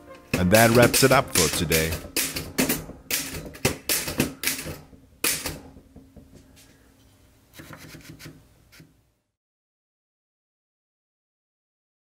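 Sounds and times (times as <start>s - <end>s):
typewriter key strikes: 0.3s - 5.6s.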